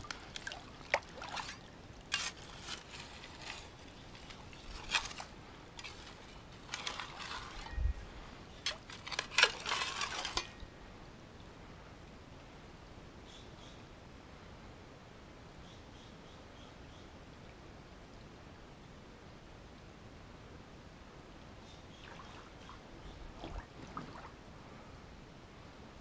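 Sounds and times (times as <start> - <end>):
creek water splashing: 0.0 - 7.6, 22.0 - 24.4.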